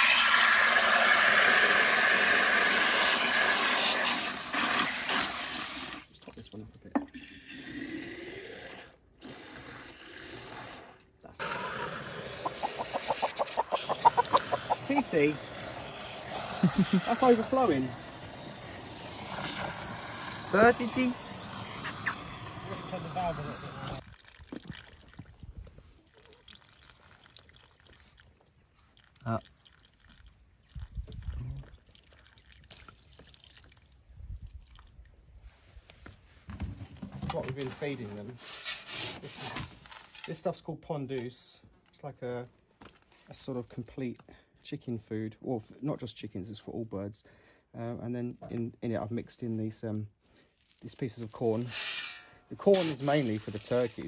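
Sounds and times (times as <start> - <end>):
water running from hose into container: 0.0 - 6.1, 9.9 - 34.9, 50.6 - 54.0
hen clucking: 12.3 - 15.4
water trickling and dripping: 24.0 - 35.4.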